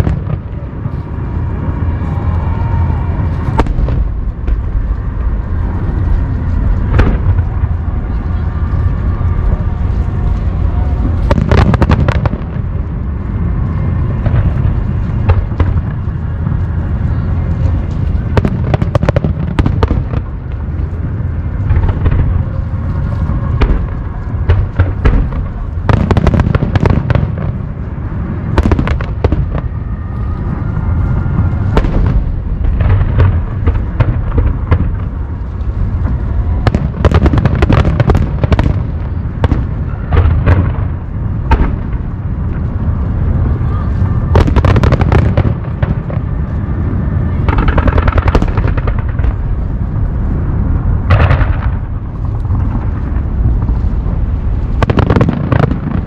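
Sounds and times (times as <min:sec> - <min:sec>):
continuous low rumble: 0:00.0 - 0:56.0
fireworks bursting with cracks and booms: 0:00.0 - 0:56.0.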